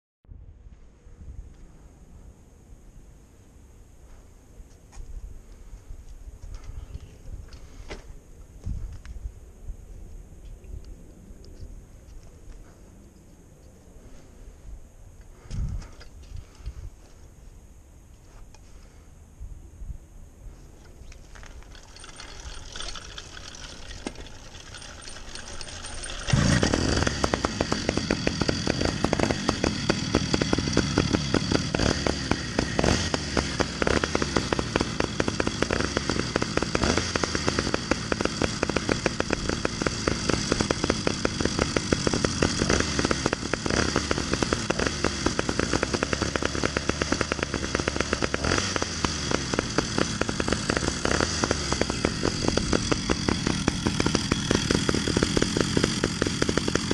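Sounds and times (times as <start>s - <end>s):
two-stroke engines running: 21.3s - 56.9s.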